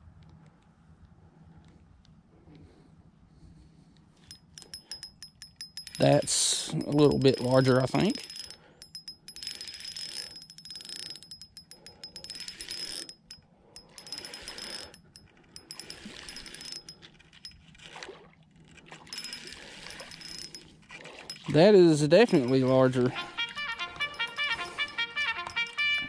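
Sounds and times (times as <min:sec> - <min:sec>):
fishing reel clicking and whining: 0:04.2 - 0:17.7, 0:19.1 - 0:26.0.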